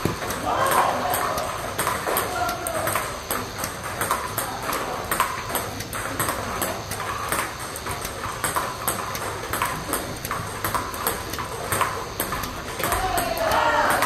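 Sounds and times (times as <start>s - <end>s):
table tennis balls clicking: 0.0s - 14.0s.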